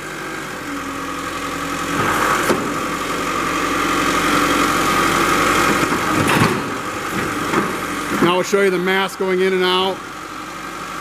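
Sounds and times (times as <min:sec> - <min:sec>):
diesel forklift engine running: 0:00.0 - 0:11.0.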